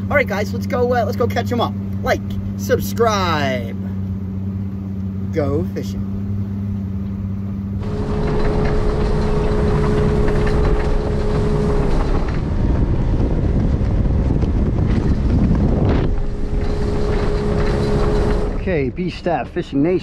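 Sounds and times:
outboard engine hum: 0.0s - 20.0s
wind and water rush: 7.8s - 20.0s.

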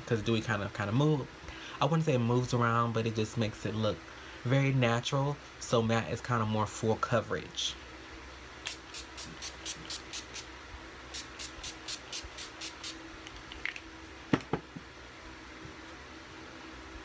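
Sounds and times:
spray bottle hissing sprays: 8.6s - 10.5s, 11.1s - 13.0s.

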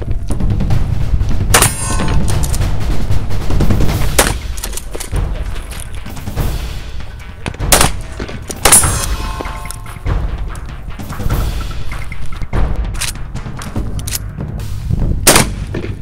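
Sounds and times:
background music: 0.0s - 16.0s
shotgun blasts: 1.5s - 2.8s, 3.9s - 4.8s, 7.6s - 9.8s, 15.2s - 16.0s.

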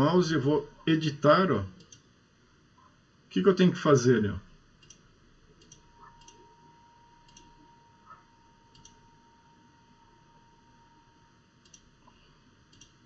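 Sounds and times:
computer mouse clicks: 1.8s - 2.1s, 5.6s - 6.4s, 7.2s - 9.0s, 11.6s - 11.9s, 12.7s - 13.0s
faint steady high tone: 5.8s - 11.6s.

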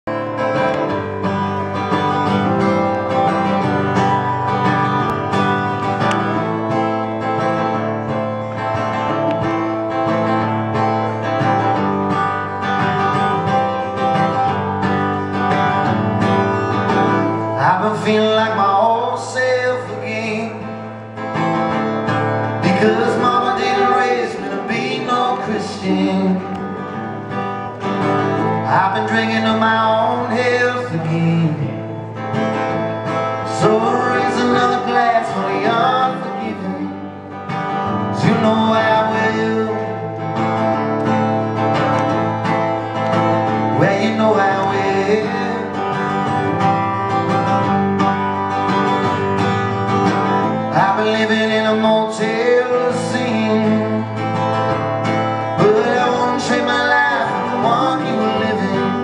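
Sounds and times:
acoustic guitar chords: 0.0s - 59.0s
person singing: 22.4s - 27.0s, 33.4s - 40.8s, 43.0s - 46.9s, 50.6s - 54.7s, 55.4s - 59.0s.

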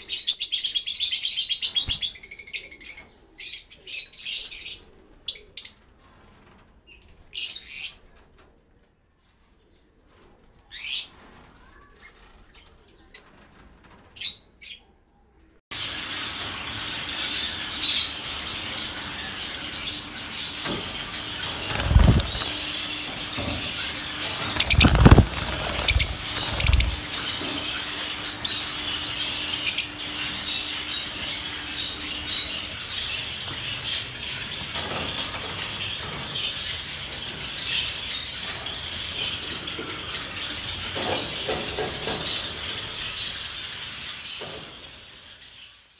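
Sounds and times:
lovebirds chirping: 15.8s - 45.9s
loud thumps: 24.4s - 27.0s.

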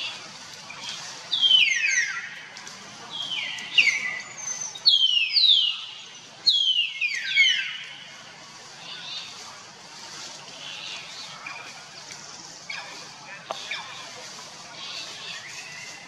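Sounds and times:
bird singing whistled notes: 0.0s - 2.4s, 3.1s - 8.0s.

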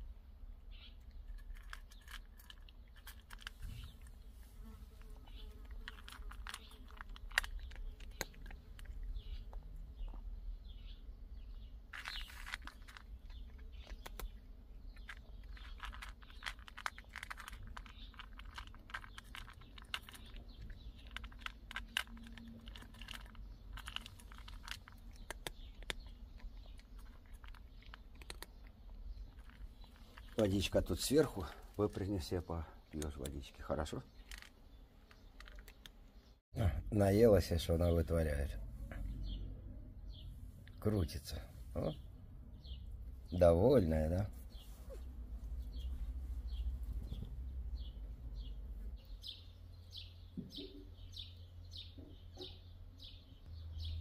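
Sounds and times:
cat crunching dry kibble: 1.2s - 10.3s, 11.7s - 31.7s, 34.2s - 36.0s.

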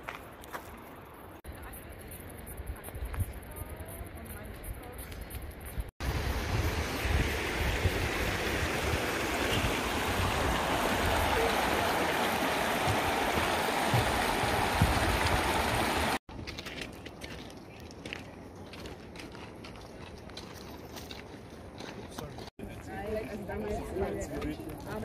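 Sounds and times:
quieter open-air sound: 0.0s - 15.4s
stream rushing over stones: 6.0s - 16.2s.

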